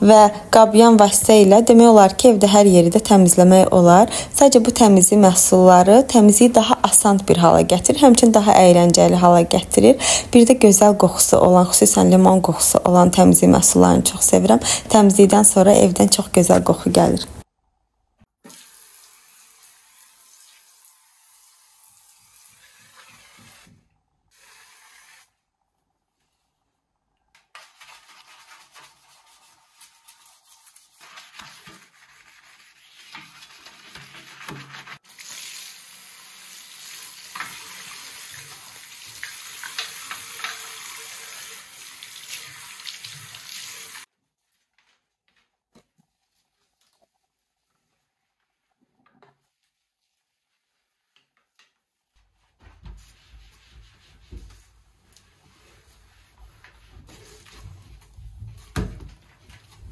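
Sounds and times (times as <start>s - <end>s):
brush scrubbing basin: 27.4s - 35.0s, 52.2s - 59.9s
tap water running into basin: 35.1s - 44.1s.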